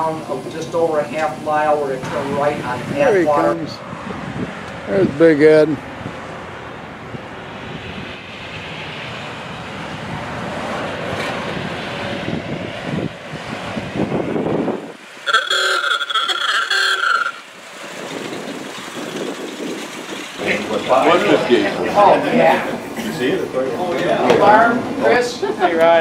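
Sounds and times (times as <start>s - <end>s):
vehicles passing on road: 0.0s - 26.0s
vehicle horn: 15.2s - 17.4s.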